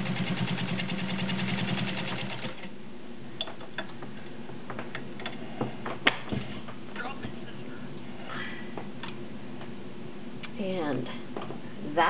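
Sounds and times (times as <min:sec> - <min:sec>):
sewing machine stitching: 0:00.0 - 0:02.7.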